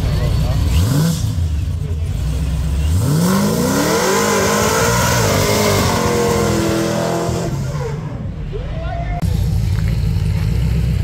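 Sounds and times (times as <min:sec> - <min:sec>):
car engine revving hard: 0:00.6 - 0:08.3.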